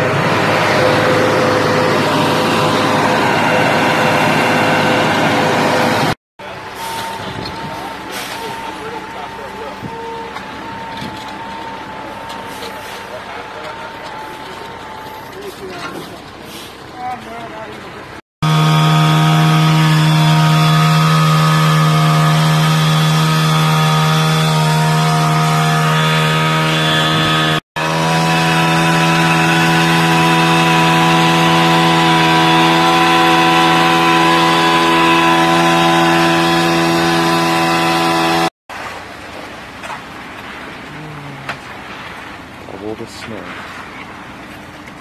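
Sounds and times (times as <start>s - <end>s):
small petrol engine droning: 0.0s - 16.0s, 18.4s - 38.5s, 40.8s - 41.7s.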